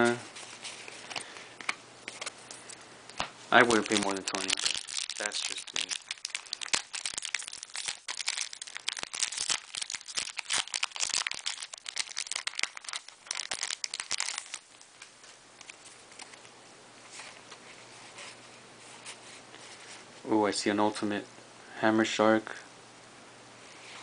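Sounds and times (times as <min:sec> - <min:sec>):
cards rustling: 0:00.3 - 0:14.6
foil pack tearing and crinkling: 0:03.6 - 0:14.6.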